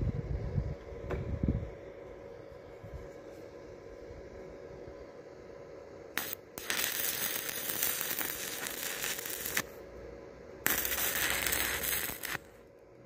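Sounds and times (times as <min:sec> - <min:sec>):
welding arc crackling: 0:06.1 - 0:09.8, 0:10.6 - 0:12.7.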